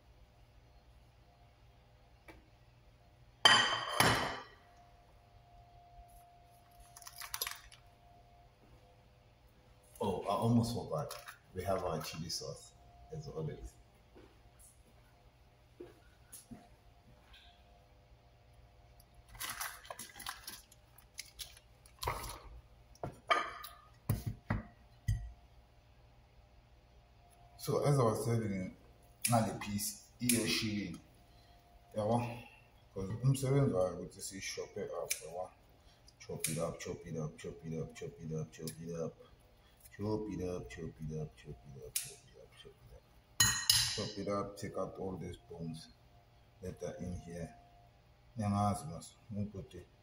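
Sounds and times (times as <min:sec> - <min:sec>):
plastic packaging rustling: 0:06.6 - 0:07.9, 0:19.3 - 0:22.6
kitchen items clinking: 0:19.3 - 0:22.5.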